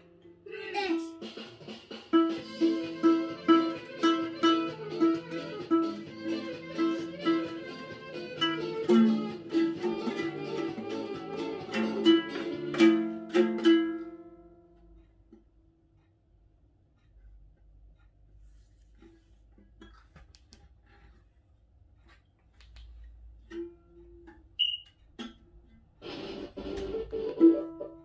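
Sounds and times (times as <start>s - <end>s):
ukulele plucked melody: 0.0s - 1.4s, 2.1s - 15.4s, 23.3s - 28.0s.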